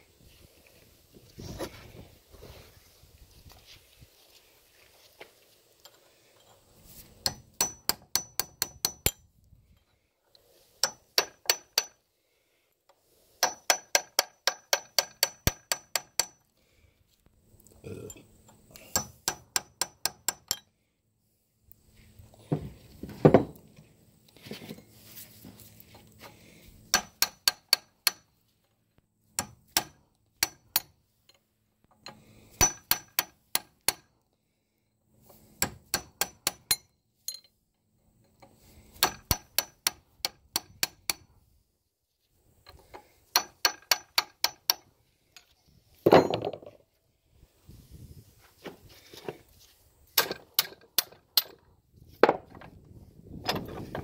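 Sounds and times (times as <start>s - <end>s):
hammer striking metal punch: 7.2s - 9.2s.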